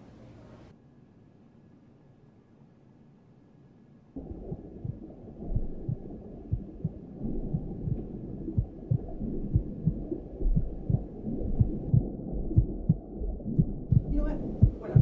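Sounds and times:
low muffled rumble: 4.2s - 15.0s.

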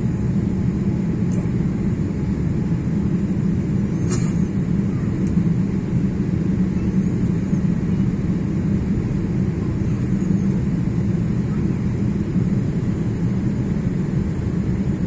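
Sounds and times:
jet engines roaring in cabin: 0.0s - 15.0s.

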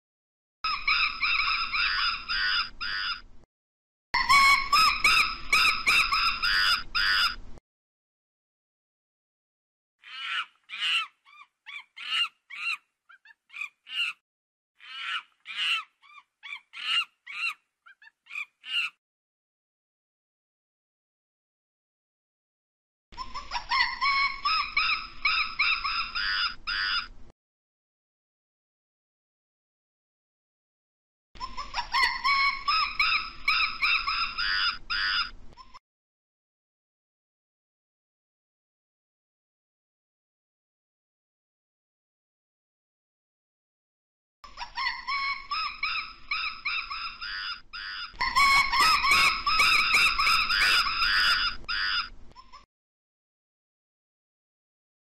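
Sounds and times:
gibbon whooping and hooting: 0.7s - 3.3s, 4.2s - 7.4s, 10.0s - 14.2s, 14.8s - 19.0s, 23.2s - 27.1s, 31.4s - 35.4s, 44.5s - 52.2s
monkeys calling: 0.7s - 3.3s, 4.2s - 7.4s, 10.0s - 14.2s, 14.8s - 19.0s, 23.2s - 27.1s, 31.4s - 35.7s, 44.5s - 52.2s.

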